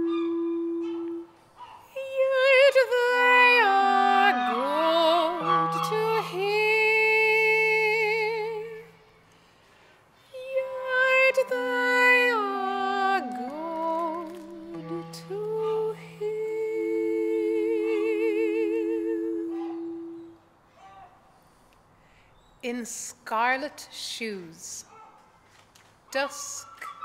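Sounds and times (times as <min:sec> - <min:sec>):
clarinet playing low notes: 0:00.0 - 0:01.4, 0:02.5 - 0:09.1, 0:10.7 - 0:20.4
soprano singing with vibrato: 0:00.0 - 0:09.1, 0:10.2 - 0:20.4.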